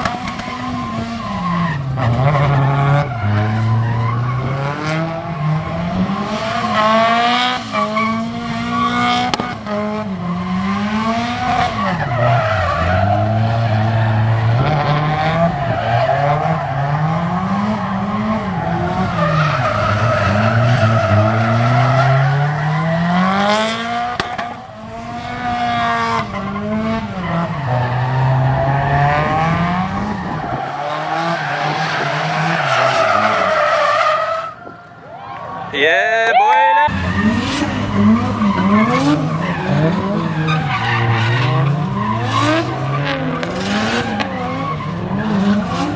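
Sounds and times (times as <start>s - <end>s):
tyres squealing and skidding: 0.0s - 45.9s
engine revving: 2.0s - 12.0s, 13.1s - 33.5s, 36.9s - 45.9s.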